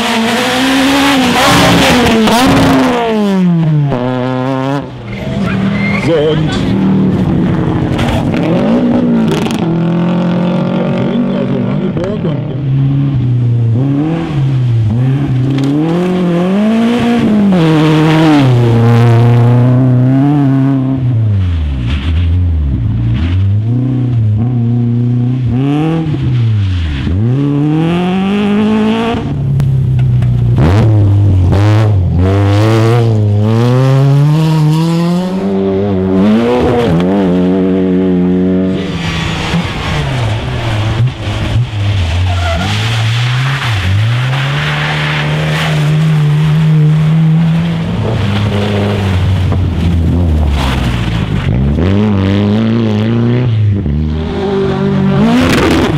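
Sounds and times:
rally car engines revving: 0.0s - 55.9s.

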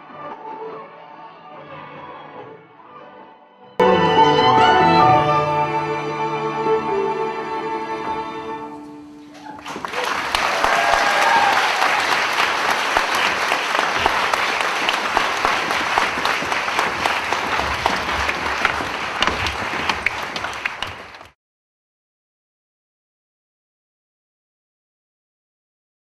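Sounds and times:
audience applauding: 9.2s - 21.4s.

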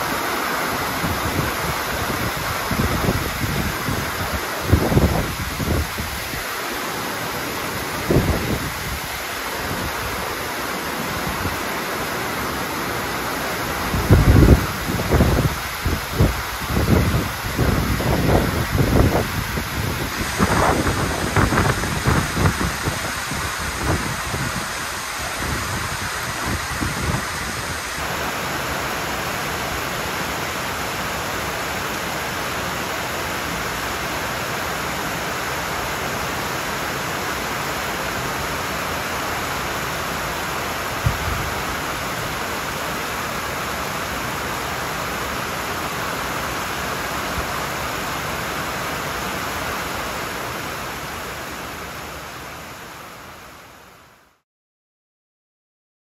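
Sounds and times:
wind gusting on microphone: 0.0s - 6.6s, 7.3s - 28.4s, 40.8s - 43.1s
heavy rain pouring: 0.0s - 54.4s.

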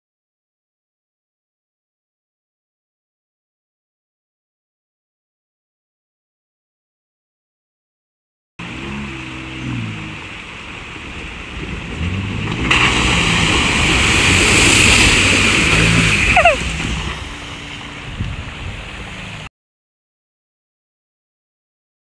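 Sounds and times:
tyres splashing water: 8.6s - 19.5s.

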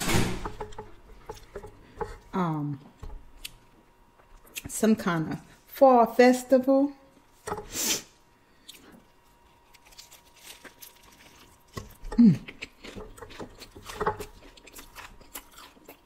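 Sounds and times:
biting and chewing: 8.6s - 16.0s
tortilla rustling: 9.3s - 11.9s
person humming mm: 12.0s - 12.6s.

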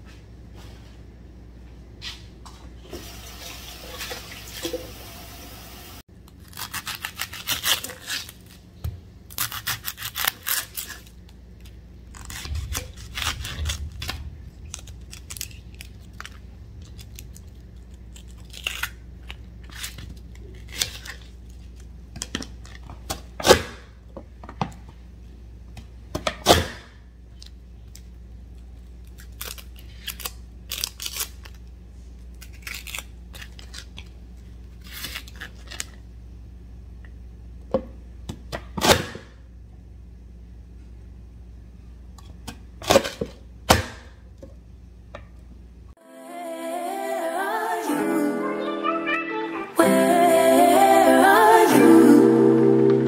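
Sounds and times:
onion skin crackling and tearing: 6.2s - 21.8s, 28.8s - 31.7s, 32.3s - 36.0s.

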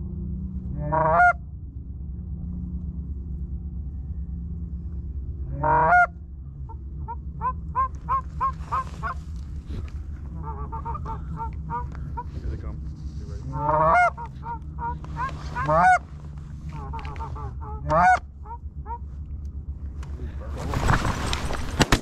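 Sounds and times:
low rumble: 0.0s - 22.0s
goose honking: 0.7s - 1.4s, 5.5s - 19.1s.

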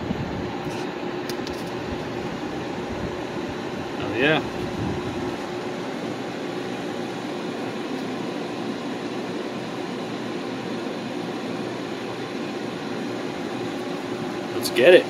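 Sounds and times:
faint constant hum: 0.0s - 15.0s
ventilation fans whirring: 0.0s - 15.0s.

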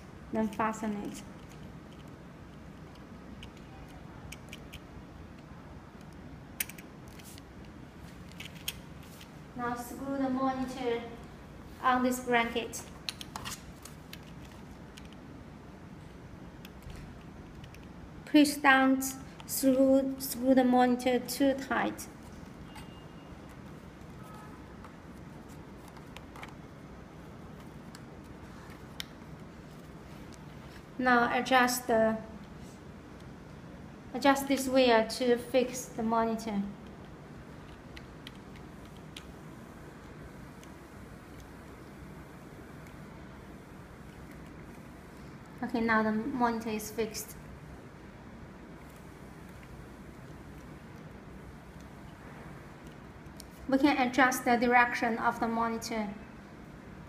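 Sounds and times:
low steady hum: 0.0s - 57.0s
plastic monitor clicks and rubbing: 6.0s - 9.3s, 12.8s - 15.2s, 22.2s - 26.7s.

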